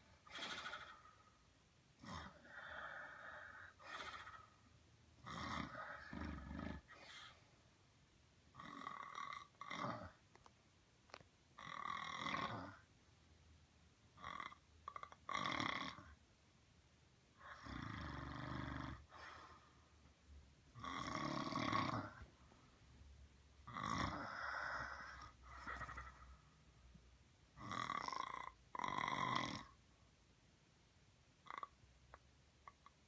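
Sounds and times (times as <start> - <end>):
person snoring: 5.2 - 7.3, 8.6 - 10.2, 11.6 - 12.8, 14.2 - 16.2, 17.4 - 19.6, 20.8 - 22.2, 23.7 - 26.3, 27.6 - 29.8.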